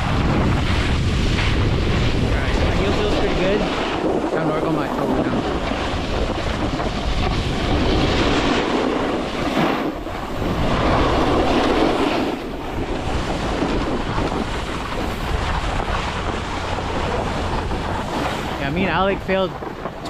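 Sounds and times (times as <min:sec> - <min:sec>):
snowboard sliding on snow: 0:00.0 - 0:20.0
wind rushing over microphone: 0:00.0 - 0:20.0.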